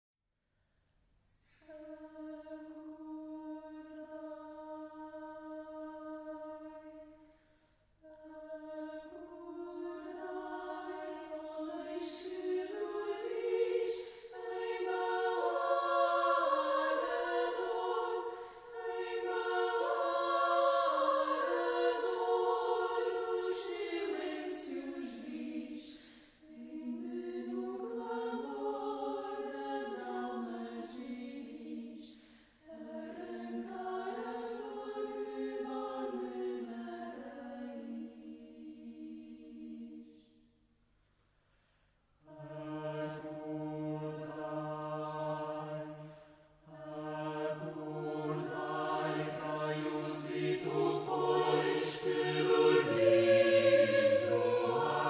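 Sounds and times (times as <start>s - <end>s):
choir singing: 1.7s - 7.3s, 8.0s - 40.4s, 42.2s - 55.0s
singers breathing: 14.0s - 14.4s, 18.2s - 18.8s, 25.9s - 26.4s, 32.1s - 32.6s, 46.0s - 46.6s.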